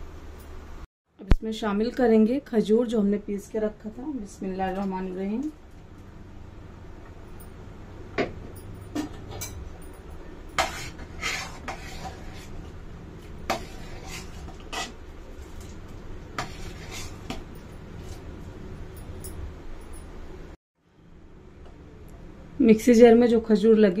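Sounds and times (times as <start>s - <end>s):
steady low hum: 3.0s - 23.4s
metal ladle scraping steel pot: 10.6s - 12.7s, 13.3s - 15.7s, 16.4s - 18.1s.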